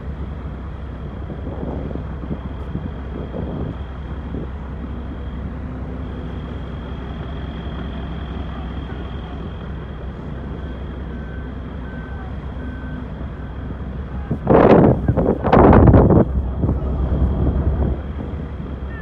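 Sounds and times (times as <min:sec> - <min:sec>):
heavy diesel equipment rumbling: 0:00.0 - 0:19.0
faint reversing alarm beeps: 0:04.8 - 0:13.9.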